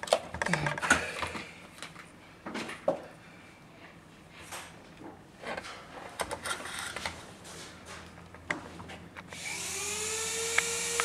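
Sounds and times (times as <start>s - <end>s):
power tool whine: 9.4s - 11.0s.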